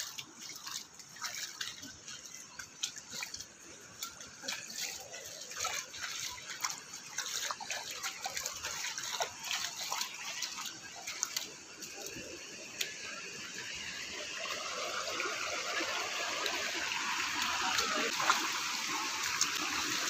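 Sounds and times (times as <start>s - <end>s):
water running over rocks: 0.0s - 20.0s.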